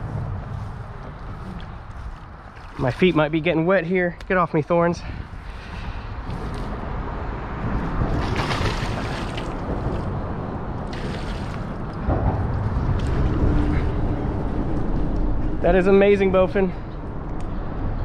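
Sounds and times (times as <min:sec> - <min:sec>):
wind buffeting microphone: 0:00.0 - 0:18.0
fish splashing at water surface: 0:08.1 - 0:10.1, 0:10.8 - 0:11.8.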